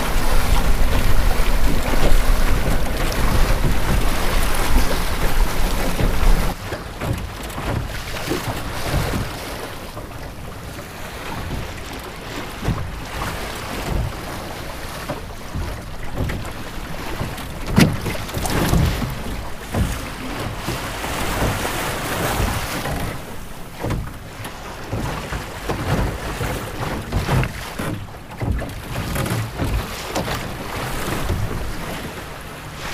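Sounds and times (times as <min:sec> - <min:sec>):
wind buffeting microphone: 0:00.0 - 0:24.2
water slapping boat hull: 0:00.0 - 0:32.9.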